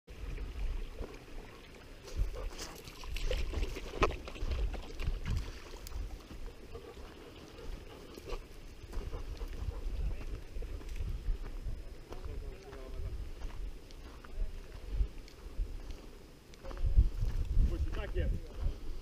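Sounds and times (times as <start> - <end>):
wind buffeting the microphone: 2.0 - 19.0.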